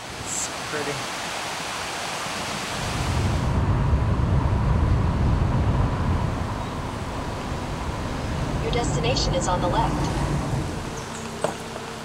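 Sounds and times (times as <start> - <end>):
rain falling: 0.0 - 3.2, 6.4 - 12.0
car driving on wet road: 0.0 - 12.0.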